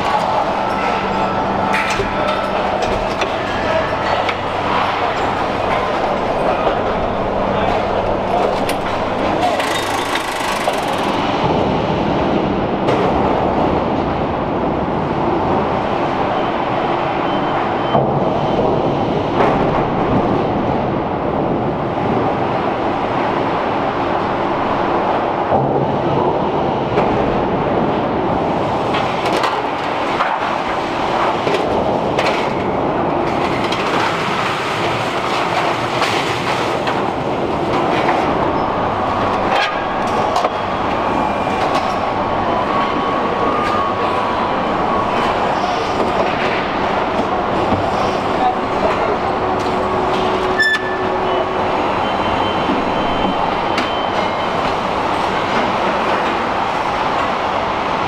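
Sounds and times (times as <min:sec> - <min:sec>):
production-line machinery din: 0:00.0 - 0:58.0
clanks and clicks: 0:07.7 - 0:11.6.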